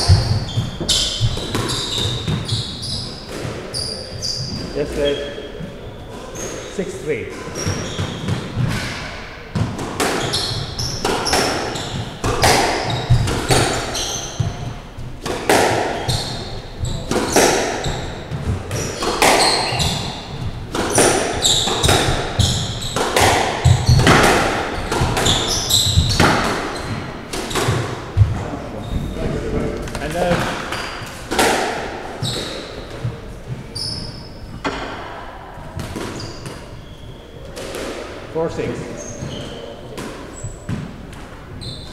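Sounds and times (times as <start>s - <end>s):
shoes squeaking on wooden floor: 0.0s - 8.9s, 10.0s - 31.5s, 32.1s - 34.8s, 36.1s - 37.5s, 38.8s - 41.9s
squash ball cracking off walls: 7.6s - 28.4s, 29.5s - 32.4s.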